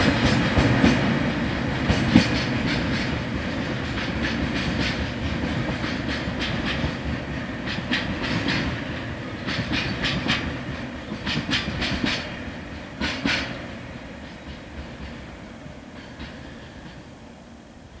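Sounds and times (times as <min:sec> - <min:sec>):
train wheels clattering over rail joints: 0:00.0 - 0:17.1
low train rumble: 0:00.0 - 0:18.0.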